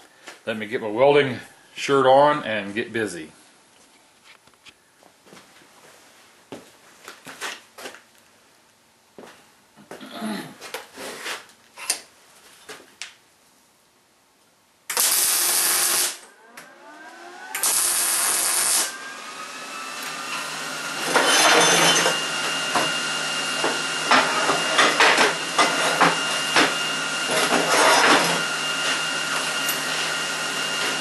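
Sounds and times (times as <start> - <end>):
welding arc crackle: 14.9 - 16.3, 17.5 - 19.0
machine whirring: 14.9 - 31.0.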